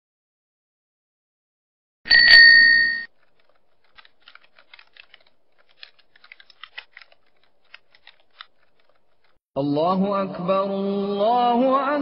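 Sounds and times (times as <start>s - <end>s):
loud ringing tone: 2.1s - 3.1s
keyboard typing: 2.2s - 9.4s.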